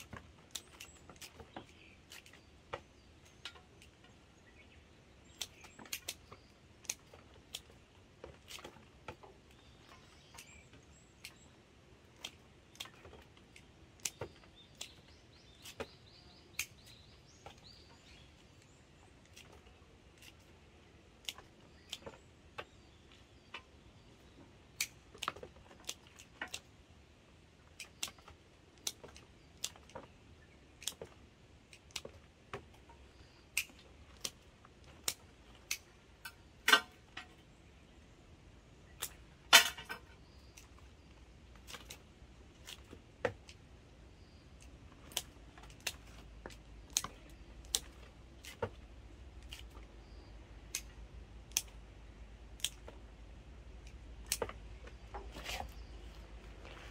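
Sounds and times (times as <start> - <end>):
pruning shears snipping stems: 12.1 - 18.3, 33.5 - 37.1, 44.6 - 48.8, 50.6 - 51.8, 53.8 - 56.9.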